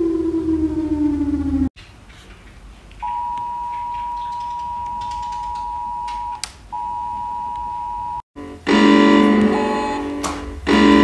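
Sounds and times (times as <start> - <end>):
two-pitch electronic alert tone: 8.4 - 11.0.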